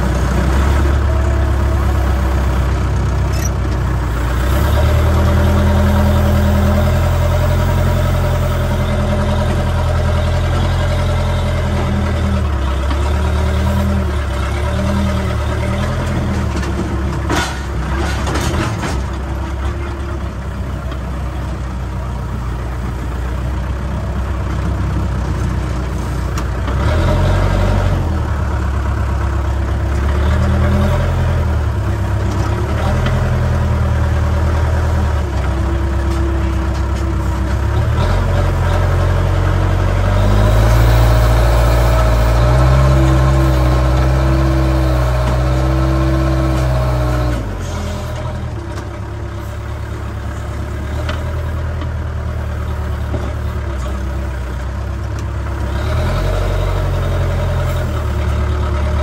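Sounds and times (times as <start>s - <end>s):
diesel engine revving: 0.0s - 59.0s.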